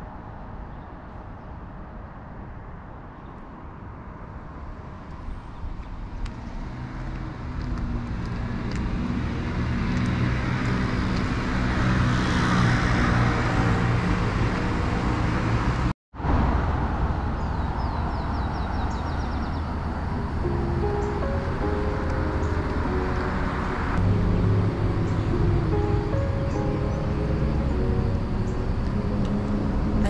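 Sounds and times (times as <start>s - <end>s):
street traffic noise: 0.0s - 30.0s
car passing close by: 6.2s - 30.0s.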